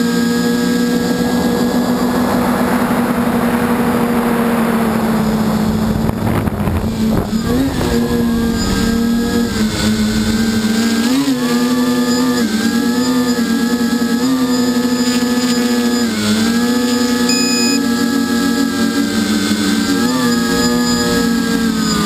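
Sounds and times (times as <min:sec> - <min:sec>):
rushing noise: 0:00.0 - 0:12.6
drone motors whining: 0:00.0 - 0:22.0.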